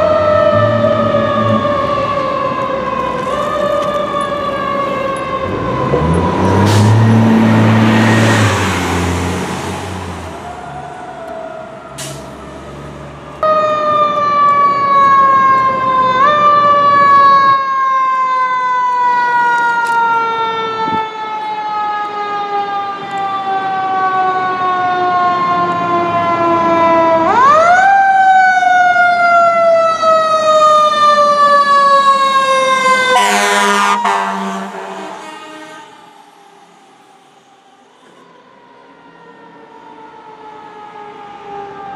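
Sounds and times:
fire truck siren wailing: 0.0 - 41.9
deep horn blasts: 4.9 - 10.4, 32.8 - 36.0.

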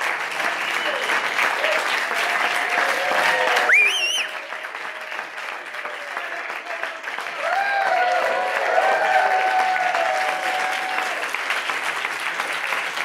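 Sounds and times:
audience applauding: 0.0 - 13.0
whooping cheers: 0.6 - 11.4.

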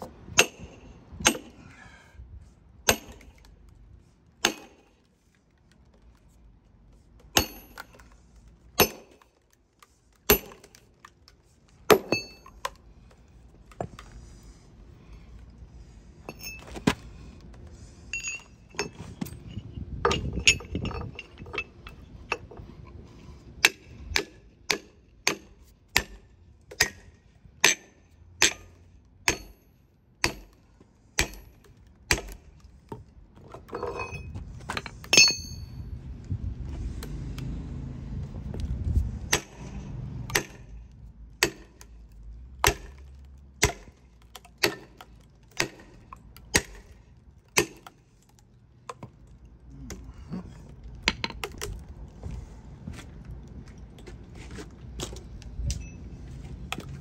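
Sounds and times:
sledgehammer striking metal wedges: 0.3 - 1.9, 2.8 - 3.5, 4.4 - 5.0, 7.3 - 8.2, 8.8 - 9.3, 10.2 - 10.9, 11.8 - 12.8, 16.2 - 17.0, 23.6 - 30.6, 31.2 - 32.5, 33.5 - 35.9, 39.3 - 40.8, 41.4 - 42.0, 42.6 - 48.3.

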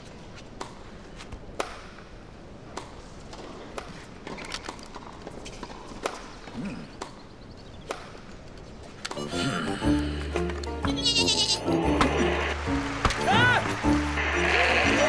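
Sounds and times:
low steady background noise: 0.0 - 10.8.

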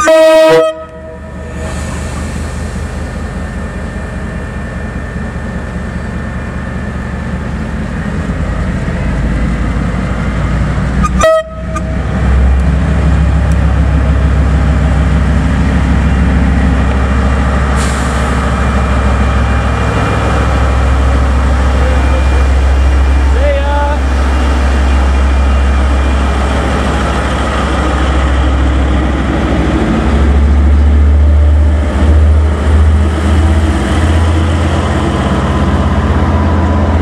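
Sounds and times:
train horn toot: 0.0 - 1.4, 11.0 - 12.0
diesel locomotive engine drone: 0.0 - 37.0.

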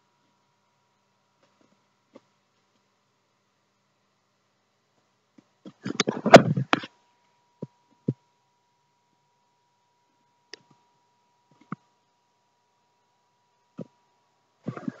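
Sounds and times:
faint steady whine: 0.0 - 15.0
camera handling rustles and knocks: 5.7 - 6.9.

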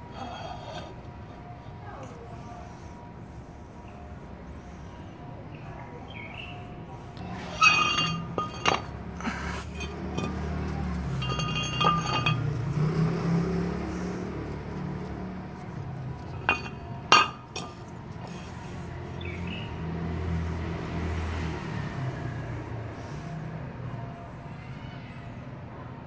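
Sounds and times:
metal brake rotors clinking: 0.1 - 1.0, 7.0 - 14.2, 15.1 - 19.6.

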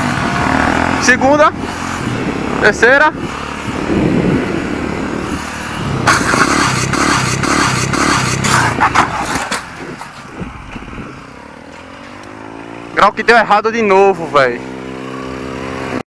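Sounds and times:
motorcycle engine running hard: 0.0 - 16.0
motorcycle crashing and scraping asphalt: 6.0 - 12.2.

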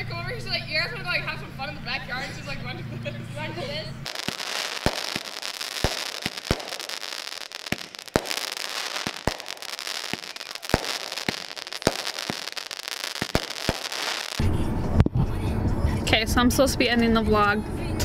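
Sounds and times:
fireworks crackling: 4.0 - 14.6
fireworks bangs: 4.0 - 14.9.

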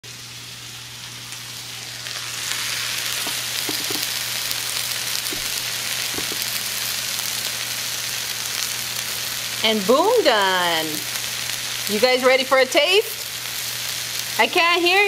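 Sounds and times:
food sizzling in a skillet: 0.1 - 15.0
light knocks on wooden board: 5.3 - 5.5, 6.1 - 6.4.

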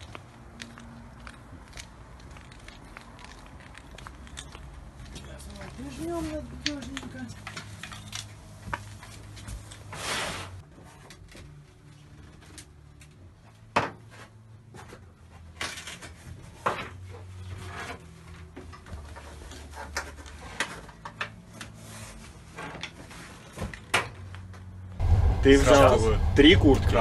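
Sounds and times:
low hum: 25.0 - 27.0.

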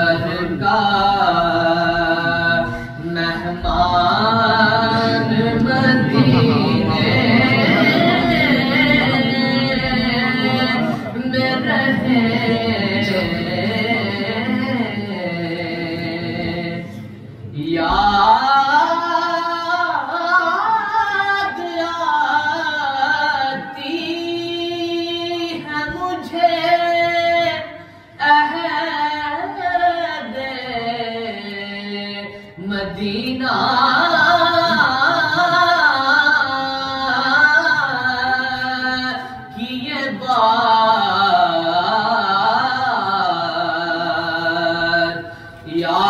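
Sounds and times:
man singing devotional poem: 0.0 - 17.0, 17.6 - 46.0.

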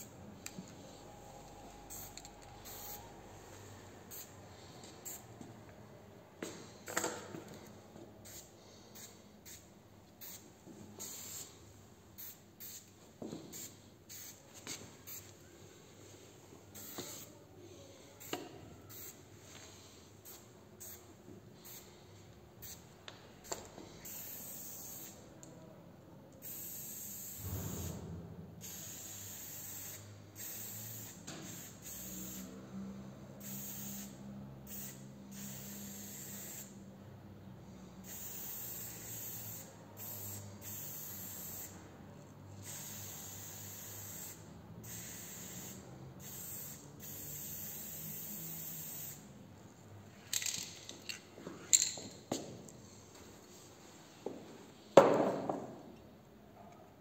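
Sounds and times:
spray can hissing: 13.5 - 15.3, 16.7 - 17.3, 24.0 - 25.2, 26.4 - 27.8, 33.4 - 36.7, 38.0 - 41.7, 42.6 - 49.2.

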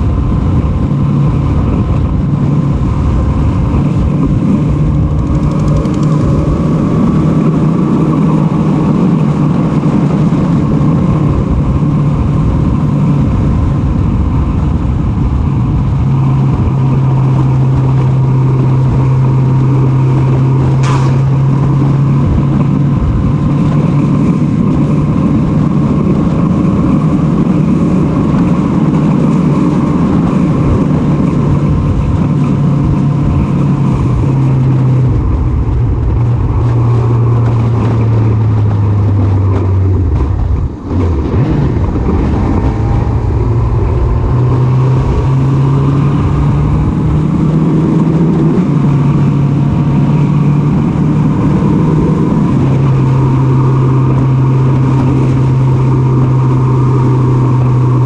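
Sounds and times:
motorcycle engine running: 0.0 - 58.0
wind and road noise: 0.0 - 58.0.

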